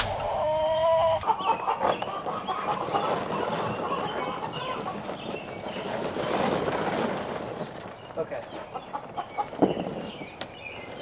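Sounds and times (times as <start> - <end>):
steady held tone: 0.0 - 1.2
hens clucking: 0.0 - 6.6, 7.6 - 11.0.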